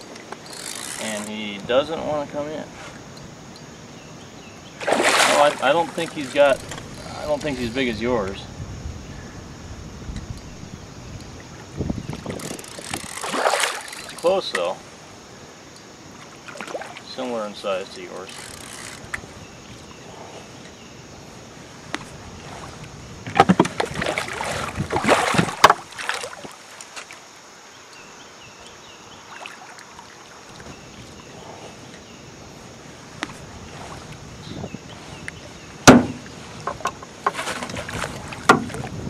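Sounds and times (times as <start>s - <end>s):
fish splashing in water: 4.8s - 7.0s, 12.3s - 14.3s, 22.0s - 27.2s
sharp knocks: 35.8s - 37.4s, 38.4s - 38.8s.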